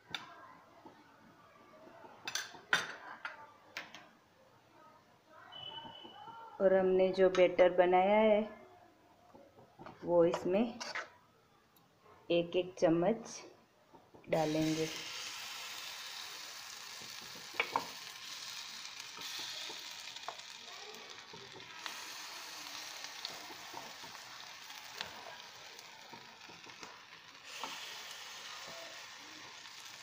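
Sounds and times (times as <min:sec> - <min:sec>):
batter sizzling in hot oil: 0:14.3 - 0:30.0.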